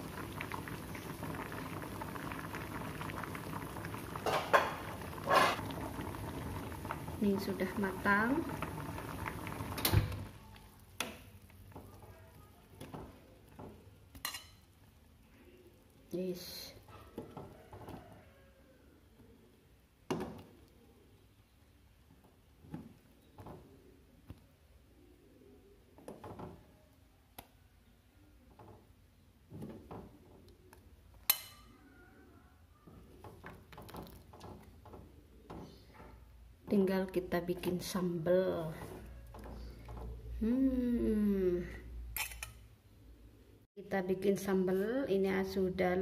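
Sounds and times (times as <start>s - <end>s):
fork scraping in metal pot: 5.3s - 5.6s, 42.2s - 42.6s.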